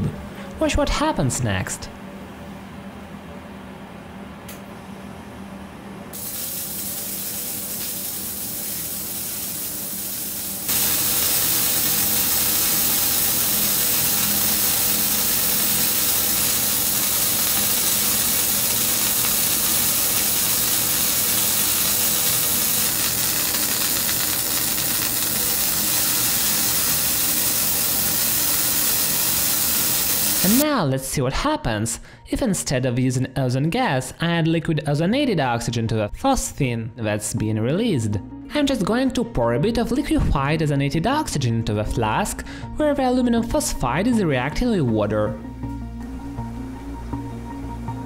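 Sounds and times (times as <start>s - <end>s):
steady hissing: 6.2s - 30.6s.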